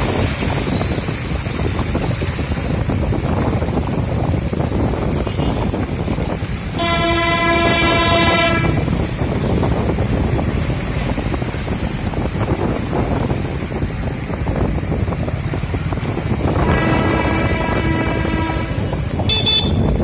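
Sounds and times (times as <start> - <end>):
floodwater rushing: 0.0 - 20.0
wind on microphone: 0.0 - 20.0
vehicle horn: 6.7 - 8.9, 16.6 - 20.0.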